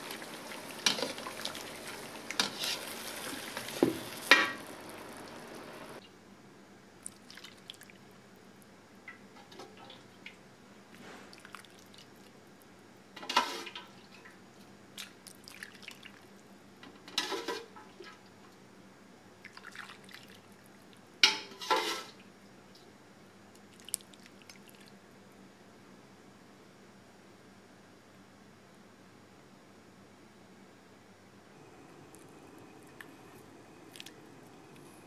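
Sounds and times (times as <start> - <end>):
liquid pouring and splashing: 0.0 - 6.0, 33.9 - 34.2.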